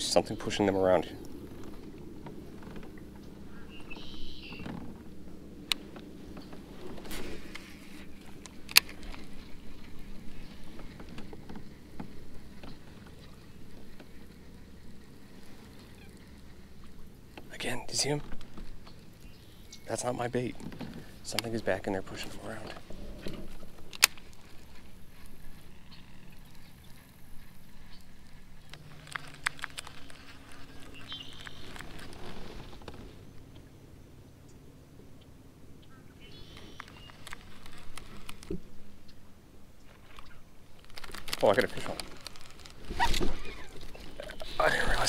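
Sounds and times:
reel ticking while reeling in: 7.5 - 17.5, 23.6 - 32.4.

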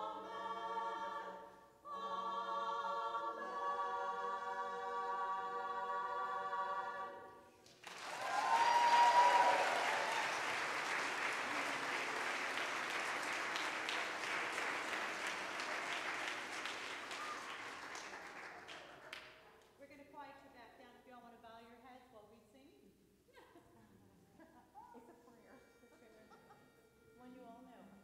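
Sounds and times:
choir singing: 0.0 - 7.6
audience applause: 7.6 - 19.4.

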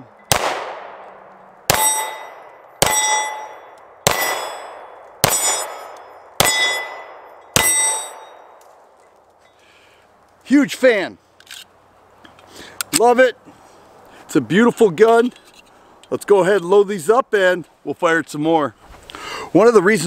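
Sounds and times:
pistol shots: 0.3 - 8.4
steel plate target ringing: 1.7 - 8.6.

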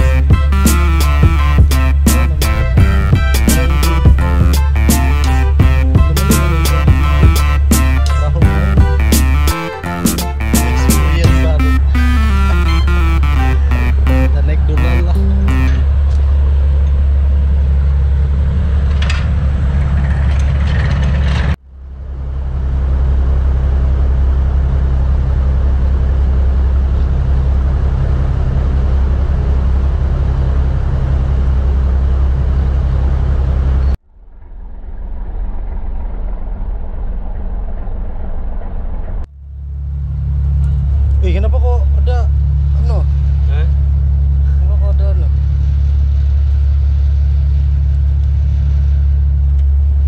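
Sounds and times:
diesel engine drone: 0.0 - 50.0.

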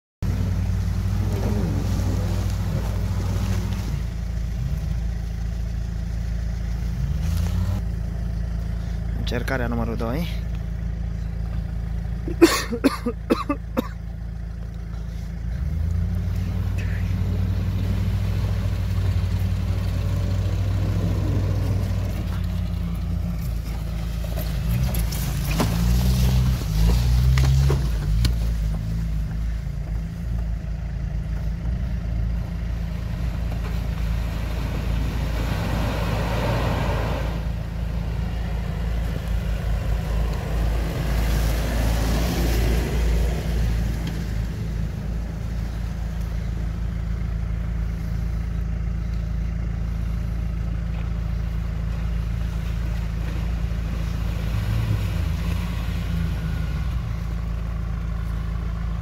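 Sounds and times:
off-road vehicle engines running: 0.2 - 59.0.

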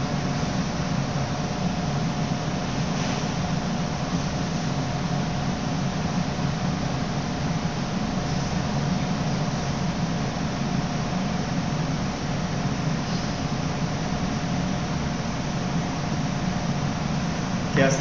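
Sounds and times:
ventilation hum: 0.0 - 18.0.

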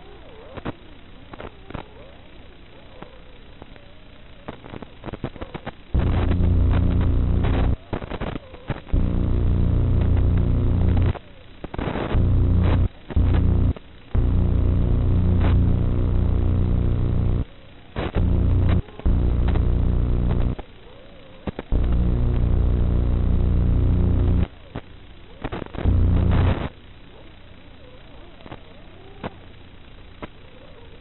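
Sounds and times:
crackles and clicks: 0.0 - 31.0
faint electrical hiss: 0.0 - 31.0
loud low electrical buzz: 6.0 - 7.8, 8.9 - 11.2, 11.8 - 20.6, 21.7 - 24.5, 25.8 - 26.7.

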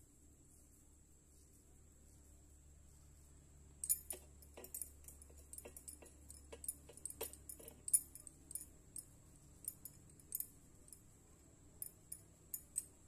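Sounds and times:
bangles jingling: 3.8 - 11.1, 11.8 - 13.0.

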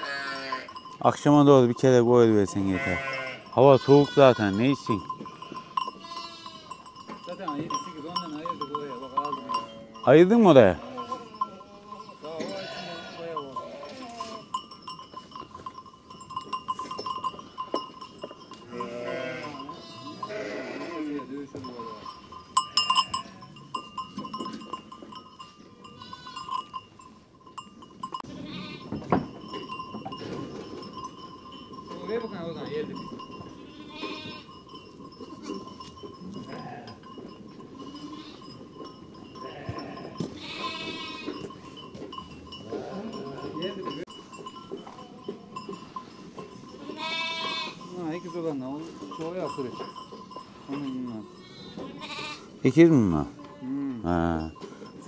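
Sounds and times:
sheep bleating: 0.0 - 0.8, 2.6 - 6.8, 10.6 - 14.5, 18.6 - 22.1, 25.9 - 26.5, 28.2 - 28.9, 33.5 - 34.5, 36.4 - 37.0, 37.9 - 38.5, 39.4 - 41.5, 42.7 - 43.7, 46.8 - 47.9, 51.4 - 52.6
livestock bells clinking: 0.0 - 55.0.

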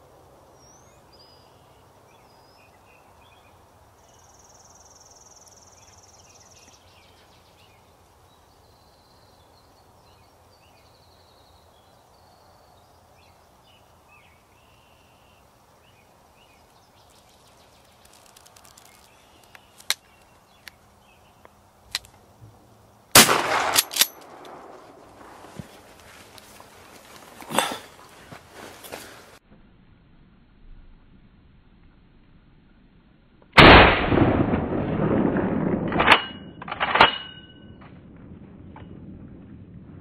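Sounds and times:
faint songbirds calling: 0.4 - 23.0
shotgun blast: 23.1 - 24.8, 33.6 - 35.9.

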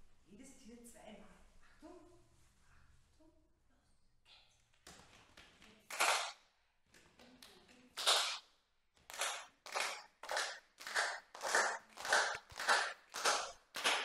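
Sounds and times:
group clapping hands in unison: 4.8 - 6.4, 7.0 - 14.0.

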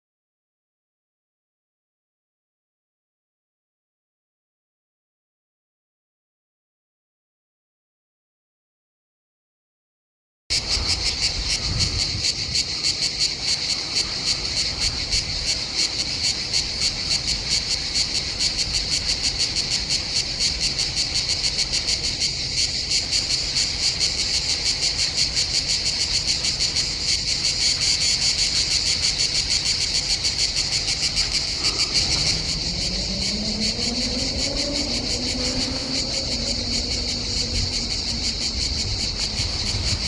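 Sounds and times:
cicada buzzing: 10.5 - 40.0.

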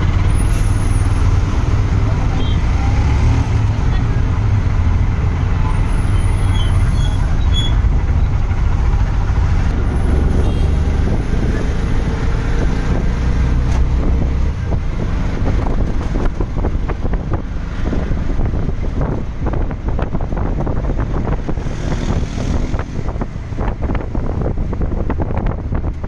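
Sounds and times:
traffic rumble: 0.0 - 26.0
wind buffeting microphone: 6.8 - 26.0.

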